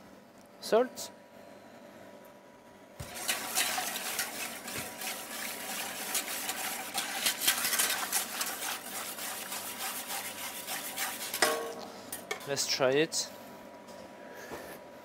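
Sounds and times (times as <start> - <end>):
liquid sloshing: 3.0 - 11.5
whisk scraping metal pot: 3.0 - 12.4.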